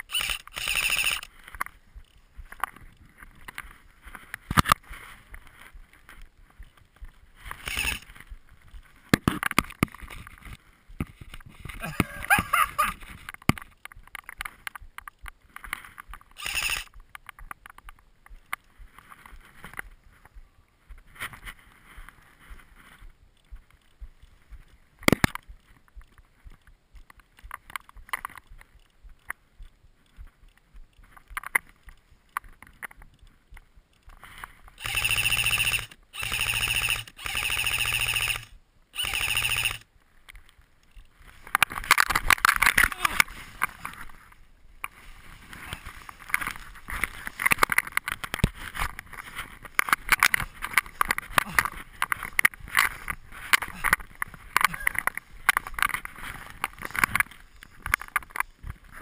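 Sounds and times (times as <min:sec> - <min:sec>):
airsoft rifle full-auto bursts: 0:00.0 - 0:01.3, 0:07.6 - 0:08.0, 0:16.4 - 0:16.9, 0:34.8 - 0:39.9
quiet rustling: 0:00.1 - 0:36.1, 0:37.8 - 0:59.0.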